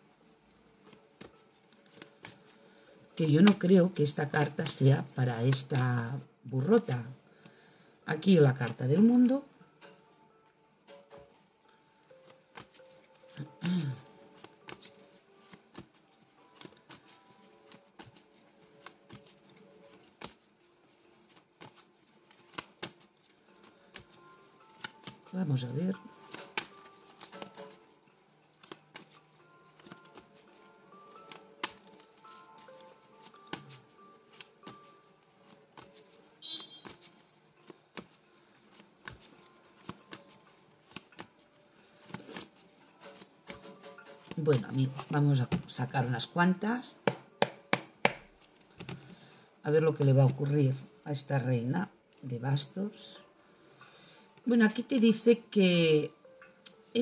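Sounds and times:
cards clicking and tapping on table: 0.8s - 2.5s, 12.2s - 20.4s, 21.3s - 23.1s, 23.7s - 25.3s, 26.2s - 27.8s, 28.6s - 30.5s, 31.1s - 32.1s, 33.2s - 34.9s, 36.6s - 41.4s, 42.0s - 45.7s, 47.0s - 49.2s.

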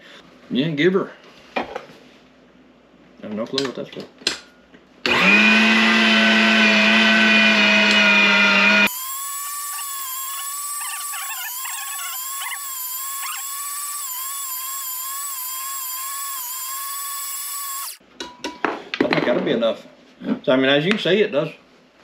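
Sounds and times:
meat grinder motor whining: 5.1s - 18.0s.

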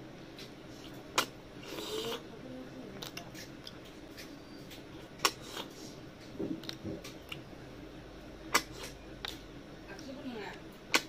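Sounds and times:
chewing: 3.0s - 5.9s, 6.5s - 7.4s.

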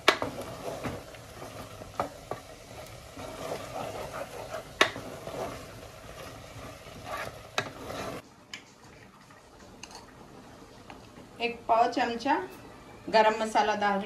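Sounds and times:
wooden spatula scraping a pot: 0.0s - 8.3s
sizzling: 0.0s - 14.0s.

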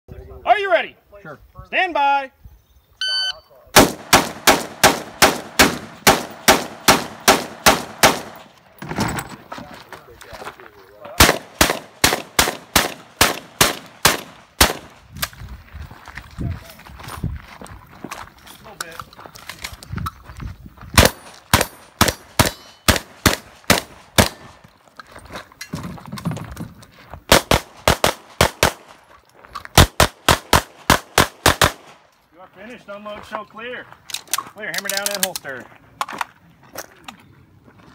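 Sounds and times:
gunshots: 3.8s - 8.6s, 11.2s - 15.0s, 21.0s - 24.6s, 27.3s - 29.0s, 29.8s - 32.0s
rifle shots with echo: 3.8s - 8.6s, 11.2s - 15.0s, 21.0s - 24.6s, 27.3s - 29.0s, 29.8s - 32.0s.

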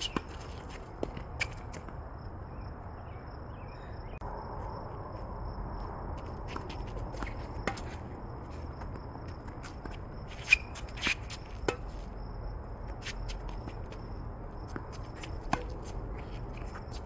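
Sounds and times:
tennis balls struck and bouncing: 0.0s - 2.1s, 6.5s - 12.1s, 13.0s - 17.0s
shoe scuffs: 9.6s - 12.1s.

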